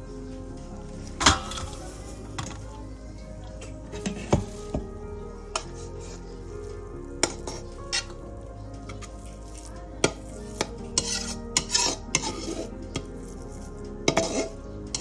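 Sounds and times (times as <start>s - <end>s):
rice sliding: 7.1s - 15.0s.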